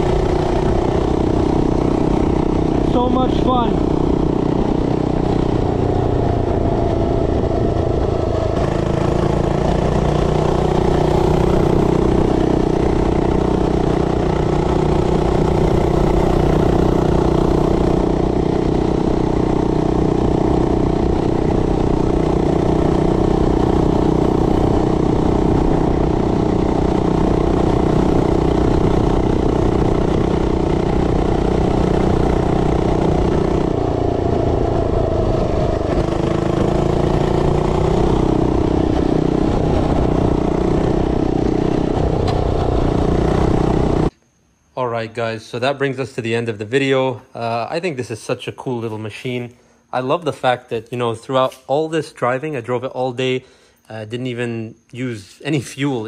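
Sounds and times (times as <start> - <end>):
mini bike engine running: 0.0 - 44.1.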